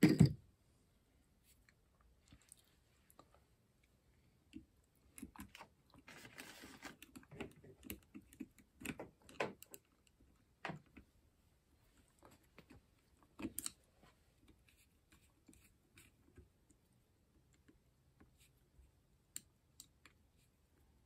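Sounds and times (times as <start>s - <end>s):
rustling scrape: 6.1s - 7.0s.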